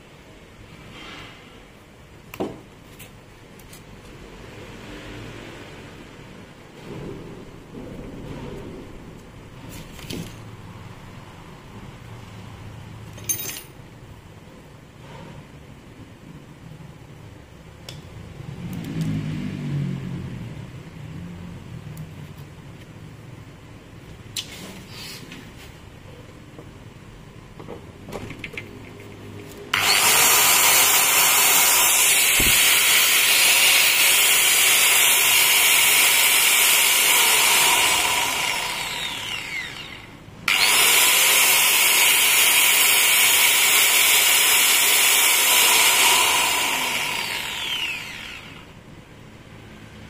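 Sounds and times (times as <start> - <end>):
angle grinder whining: 29.7 - 48.8.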